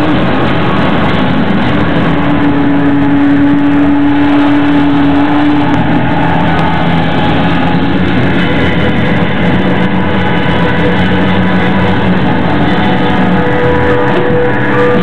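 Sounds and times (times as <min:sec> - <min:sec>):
distorted electric guitar: 0:00.0 - 0:15.0.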